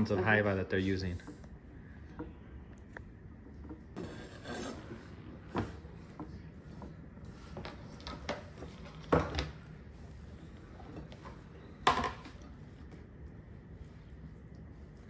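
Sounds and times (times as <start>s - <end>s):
utensils scraping mixing bowl: 3.8s - 9.0s.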